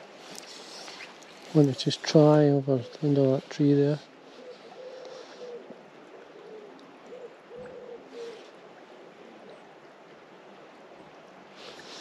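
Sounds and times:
flowing river water: 0:00.0 - 0:12.0
bird calling: 0:04.3 - 0:08.6.

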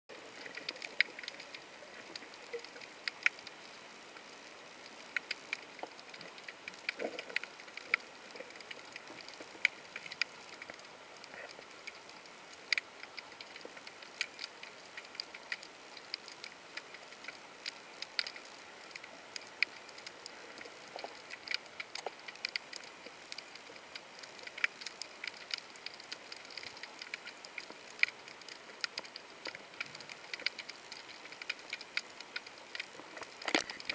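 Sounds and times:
sharp underwater clicks and crackles: 0:00.1 - 0:33.9.

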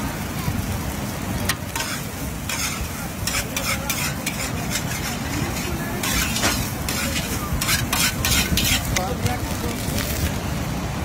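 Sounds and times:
rice sizzling: 0:00.0 - 0:11.0
metal spatula scraping a wok: 0:01.5 - 0:09.2.

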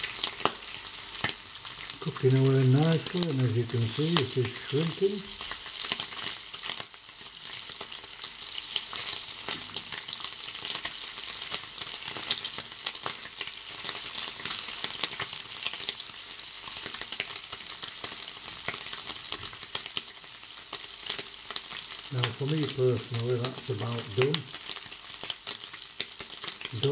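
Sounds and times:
bacon sizzling in a frying pan: 0:00.0 - 0:26.9
tongs turning bacon: 0:00.1 - 0:06.8, 0:22.0 - 0:26.9.

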